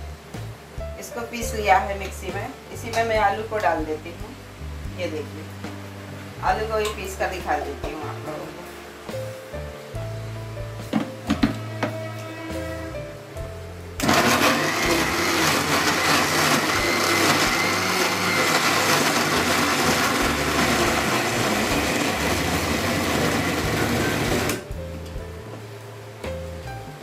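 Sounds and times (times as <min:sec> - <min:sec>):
electric mixer grinder running: 0:11.4 - 0:12.8, 0:14.0 - 0:24.6.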